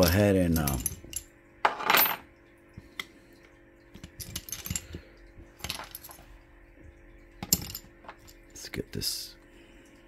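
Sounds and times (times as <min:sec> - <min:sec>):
metal tools clinking on workbench: 0:00.0 - 0:02.3, 0:07.4 - 0:08.4.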